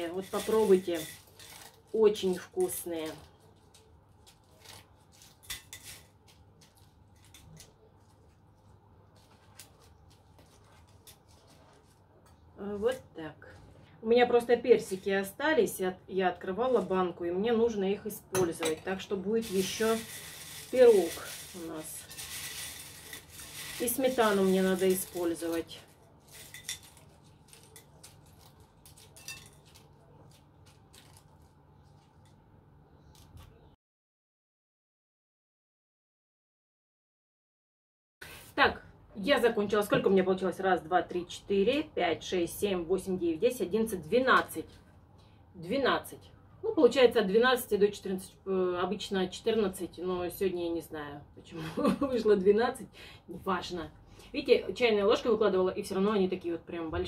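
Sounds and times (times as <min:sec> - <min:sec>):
cornflakes crackling: 0:00.0 - 0:12.0, 0:19.4 - 0:32.3.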